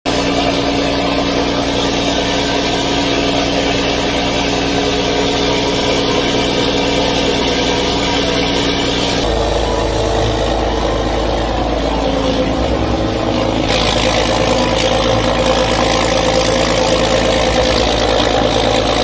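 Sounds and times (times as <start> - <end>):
boat engine droning: 0.0 - 19.0.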